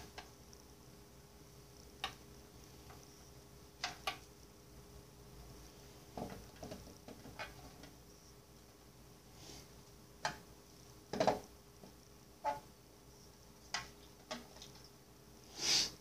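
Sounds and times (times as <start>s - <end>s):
plastic containers clicking and tapping: 11.1s - 12.0s.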